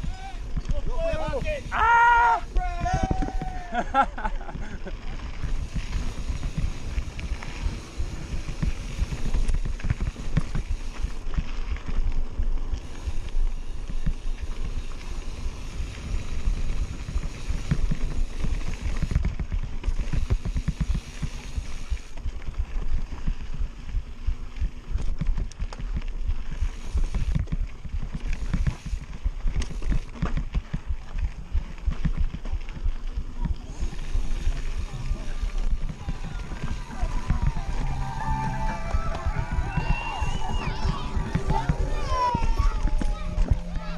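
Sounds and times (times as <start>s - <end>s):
bike rattling over bumps: 0.0s - 43.9s
wind rumble on microphone: 0.0s - 43.9s.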